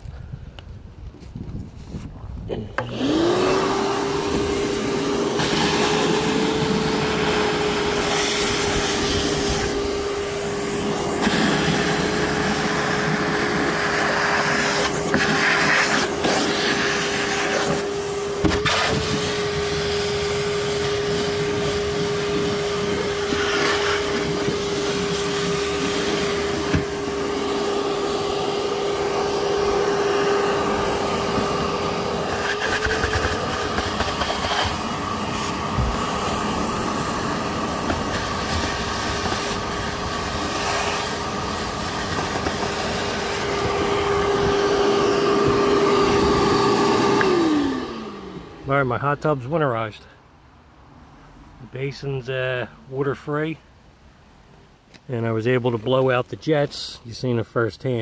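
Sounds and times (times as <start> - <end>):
shop vac motor whine: 2.5 - 48.8.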